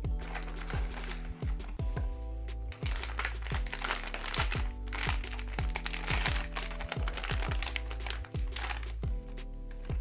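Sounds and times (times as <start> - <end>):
music with deep bass notes: 0.0 - 10.0
packaging crinkling: 0.2 - 1.7, 2.7 - 9.0.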